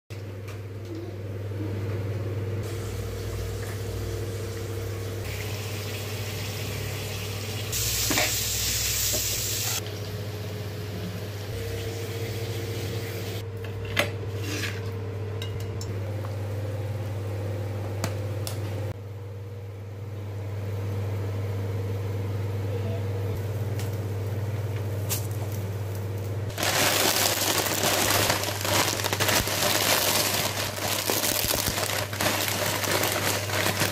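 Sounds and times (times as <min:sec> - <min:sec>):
boiling water hissing: 0:02.6 - 0:09.8.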